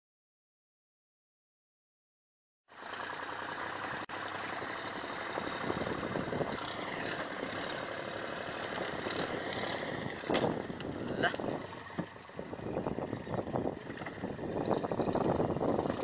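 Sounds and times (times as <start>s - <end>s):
boat engine running: 2.8s - 16.0s
wind noise on microphone: 5.2s - 7.8s, 8.4s - 16.0s.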